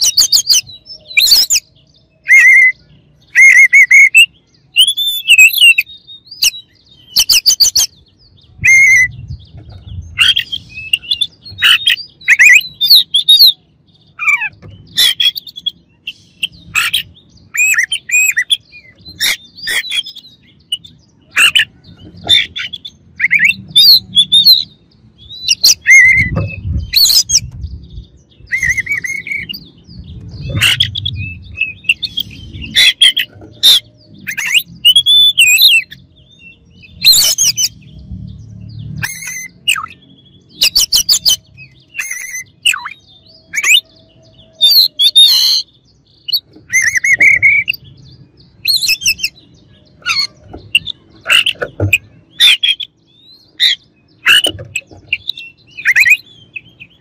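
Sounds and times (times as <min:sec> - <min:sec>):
songbird singing: 0:00.0 - 0:57.0.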